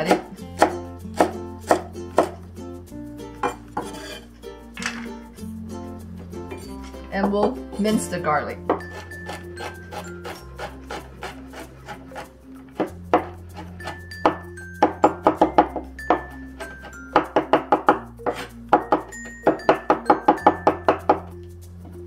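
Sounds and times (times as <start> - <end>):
cleaver chopping on wooden board: 0.0 - 2.4, 8.7 - 21.3.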